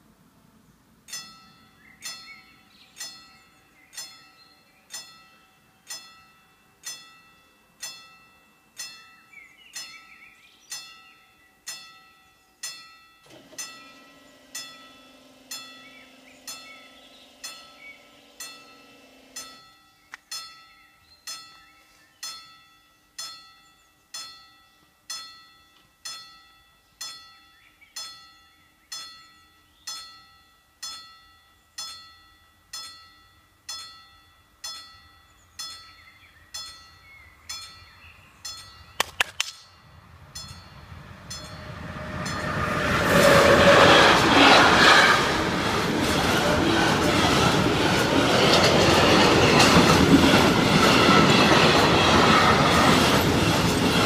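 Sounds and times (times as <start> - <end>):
warning bells ringing: 1.0 - 39.0, 39.6 - 44.0
barrier motor humming: 41.1 - 54.0.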